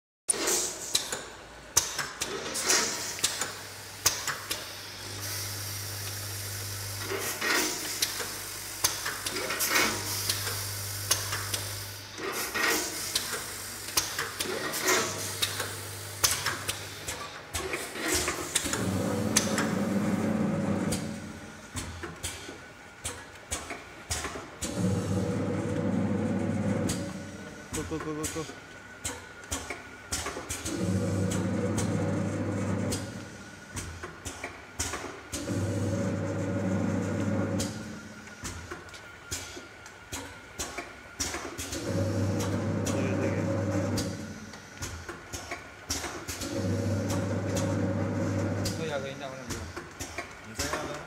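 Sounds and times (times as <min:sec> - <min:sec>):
loud steady machine sound: 0:02.2 - 0:21.7, 0:24.6 - 0:28.6, 0:30.2 - 0:34.0, 0:35.4 - 0:38.4, 0:41.4 - 0:45.0, 0:46.4 - 0:49.7
low motor hum: 0:18.7 - 0:21.5, 0:24.7 - 0:27.9, 0:30.7 - 0:33.4, 0:41.8 - 0:44.4.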